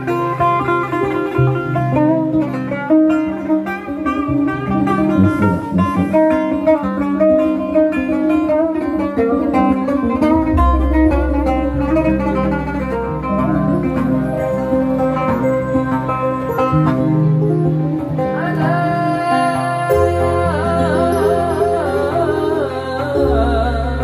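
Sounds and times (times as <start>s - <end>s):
plucked oud melody: 0.0s - 24.0s
low sustained bass note: 4.2s - 6.7s, 9.8s - 19.2s
electronic keyboard: 8.6s - 24.0s.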